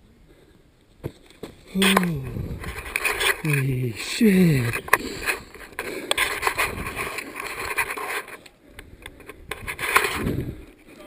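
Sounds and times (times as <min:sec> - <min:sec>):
brush scraping: 0:01.8 - 0:08.4.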